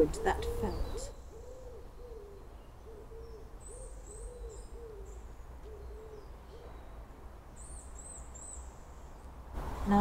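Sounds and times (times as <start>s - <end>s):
dove cooing: 0.0s - 6.8s
small birds chirping faintly: 0.0s - 10.0s.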